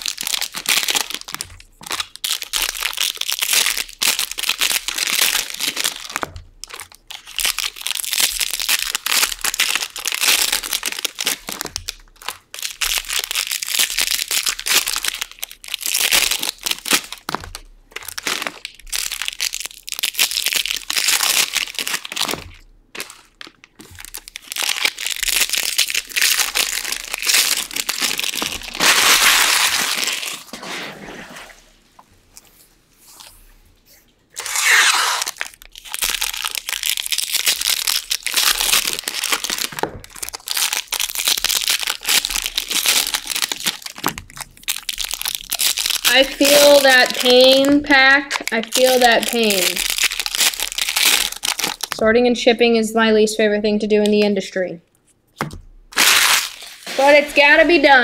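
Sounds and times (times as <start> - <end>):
foil wrappers tearing and crinkling: 0.0 - 30.9, 34.4 - 52.0, 55.9 - 58.0.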